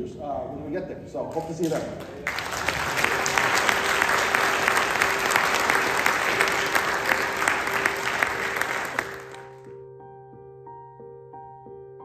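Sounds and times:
audience applauding: 1.3 - 9.7.

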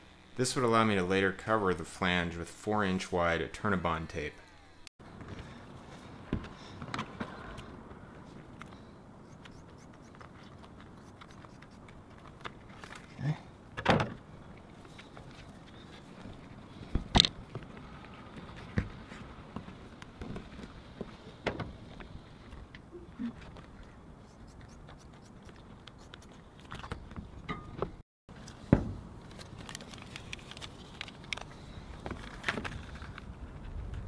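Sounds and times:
tape peeling crackles: 29.2 - 33.3.

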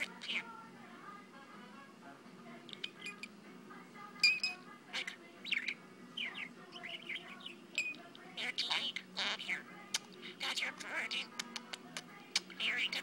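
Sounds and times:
budgie chirping: 2.7 - 3.3, 4.2 - 13.0.

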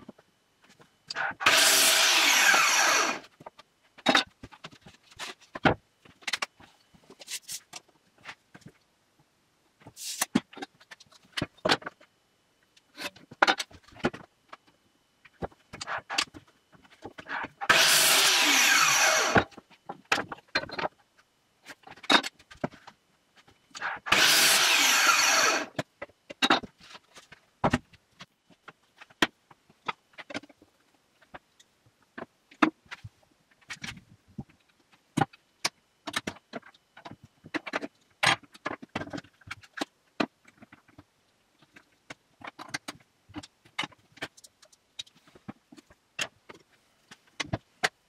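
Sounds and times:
miter saw cutting wood: 1.2 - 3.3, 17.6 - 19.5, 23.9 - 25.8.

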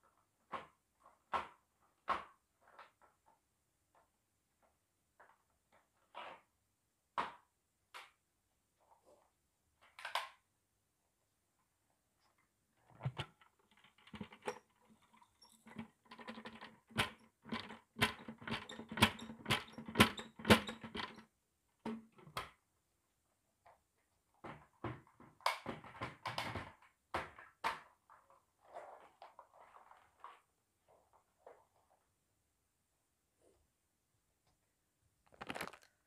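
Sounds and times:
lentils pattering on carpet: 35.3 - 36.0.

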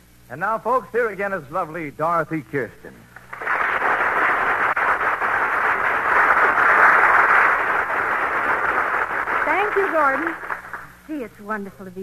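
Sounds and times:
studio audience applauding: 3.2 - 11.0.

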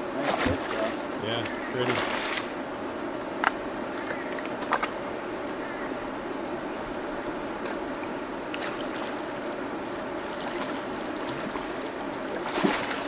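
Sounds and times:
river water rushing: 0.0 - 13.0
small water splashes: 0.2 - 2.6, 8.5 - 9.2, 10.0 - 13.0
fish thrashing splash: 12.4 - 13.0.

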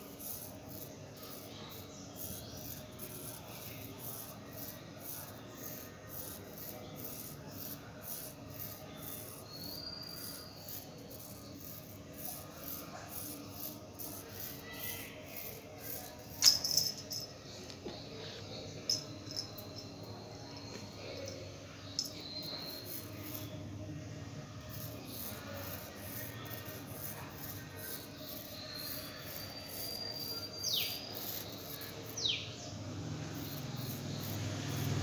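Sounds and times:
insect chirping: 33.3 - 35.0.

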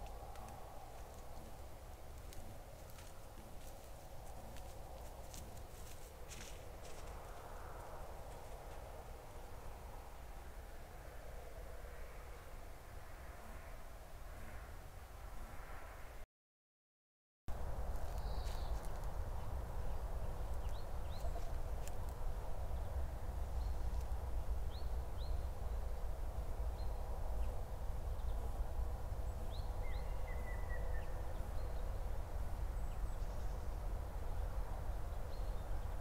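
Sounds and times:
steady low rumble: 0.0 - 14.5, 17.5 - 36.0
faint bird chirps: 29.5 - 32.0.

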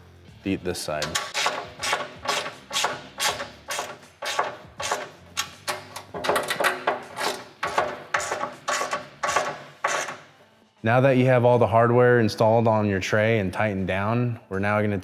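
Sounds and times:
ratchet tightening bolts: 1.0 - 10.3.

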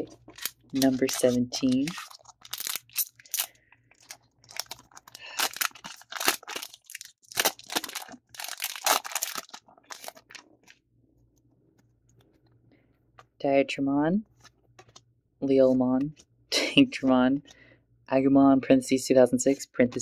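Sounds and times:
foil pack crinkling and tearing: 0.0 - 10.5.

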